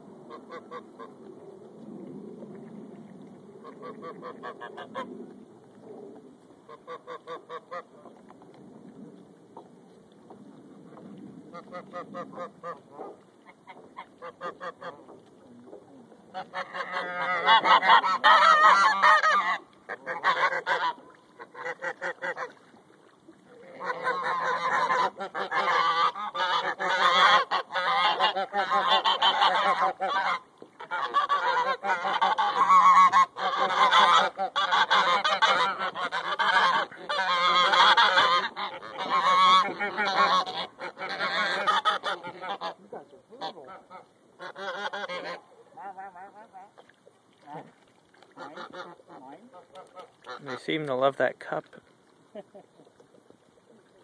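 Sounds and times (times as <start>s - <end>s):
geese honking: 16.3s - 22.6s, 23.6s - 46.7s, 48.4s - 50.8s.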